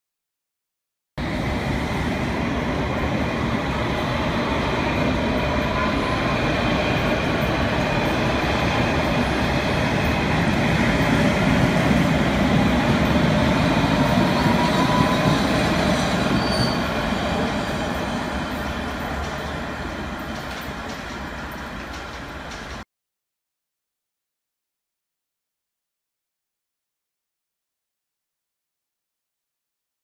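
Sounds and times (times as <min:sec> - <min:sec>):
train wheels rumbling on rails: 0:01.2 - 0:22.8.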